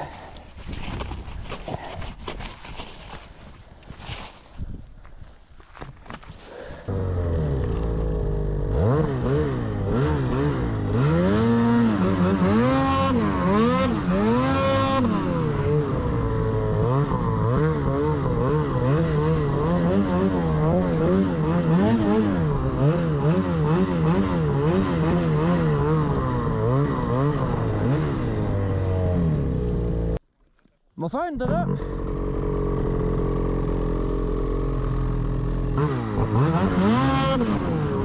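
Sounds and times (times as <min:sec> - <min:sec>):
snowmobile engine revving: 0:06.9 - 0:30.2, 0:31.3 - 0:38.0.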